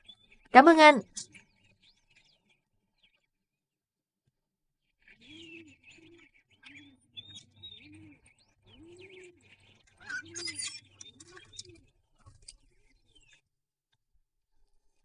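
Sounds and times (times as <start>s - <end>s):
birds chirping and twittering: 0.0s - 3.3s, 5.0s - 13.4s.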